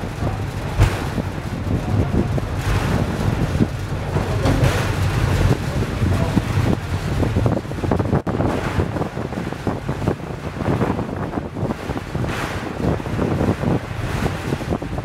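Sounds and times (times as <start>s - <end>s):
funicular car low rumble: 0.0s - 15.0s
wheels rattling on track: 0.0s - 15.0s
wind buffeting microphone: 0.0s - 15.0s.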